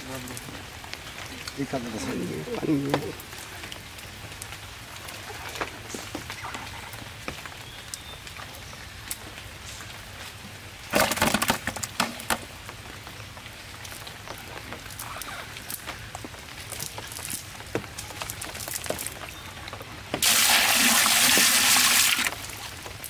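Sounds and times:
fish thrashing in plastic bucket: 0:10.9 - 0:12.5.

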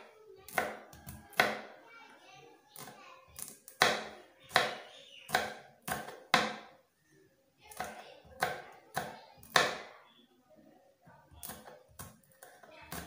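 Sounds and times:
knife chopping on wooden board: 0:00.5 - 0:01.7, 0:02.8 - 0:06.7, 0:07.7 - 0:09.9.

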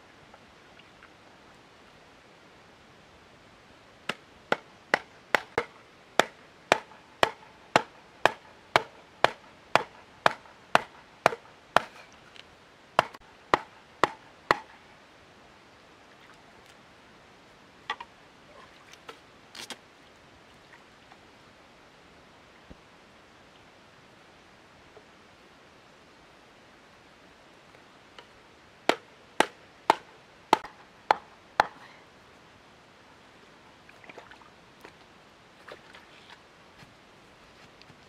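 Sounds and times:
wooden club knocking on stake: 0:04.1 - 0:12.0, 0:13.0 - 0:14.7.

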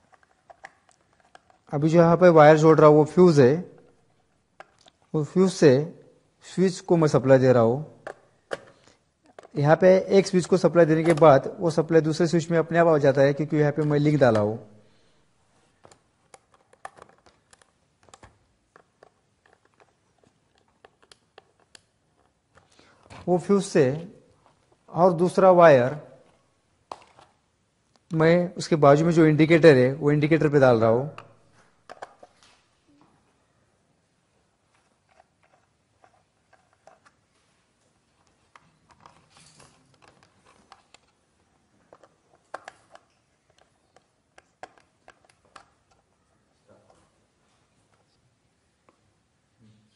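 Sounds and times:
hands clicking and tapping wiring: 0:41.8 - 0:46.1.

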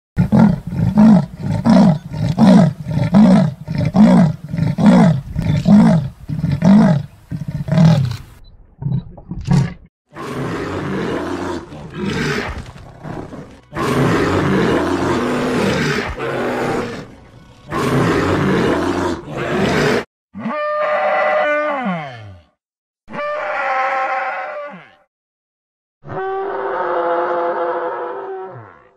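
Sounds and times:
leopard long growls: 0:09.4 - 0:20.0.

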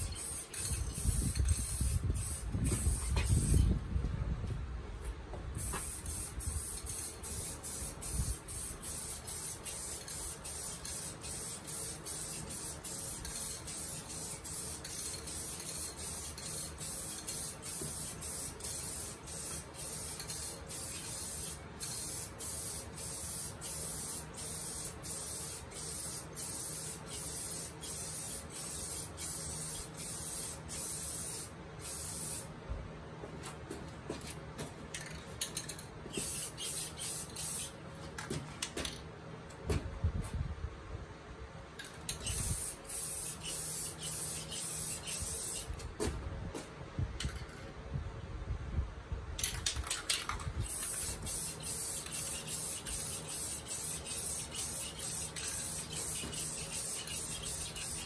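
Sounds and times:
aerosol spray can hissing: 0:00.0 - 0:03.7, 0:05.6 - 0:32.5, 0:36.1 - 0:37.8, 0:42.2 - 0:45.7, 0:50.6 - 0:58.0.

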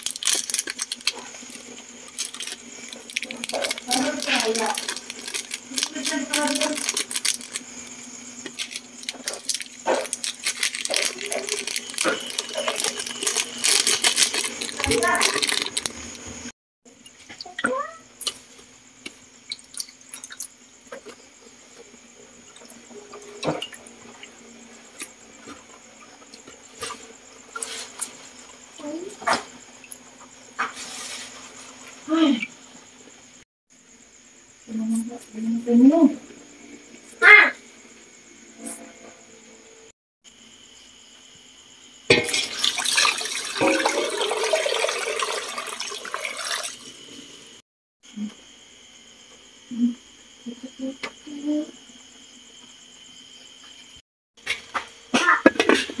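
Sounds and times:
water pouring into a pot: 0:00.0 - 0:07.6, 0:08.6 - 0:16.2, 0:42.1 - 0:47.0.

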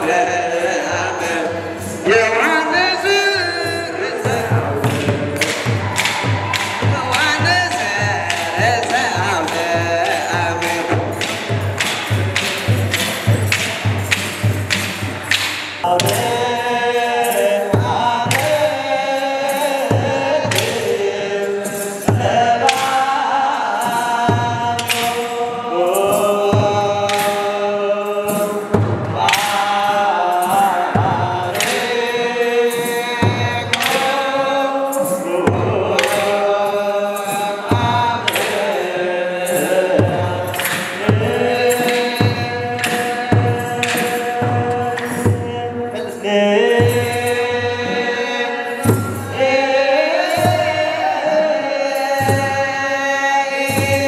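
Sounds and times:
men chanting together: 0:00.0 - 0:14.9, 0:15.8 - 0:54.0
hand drum beats: 0:00.0 - 0:52.8, 0:53.6 - 0:54.0.

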